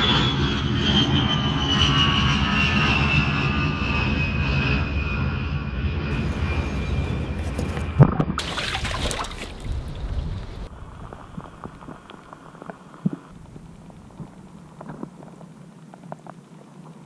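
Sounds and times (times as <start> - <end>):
aircraft engine drone: 0.0 - 8.1
object splashing into pond: 8.4 - 12.1
rush of disturbed water: 8.4 - 14.9.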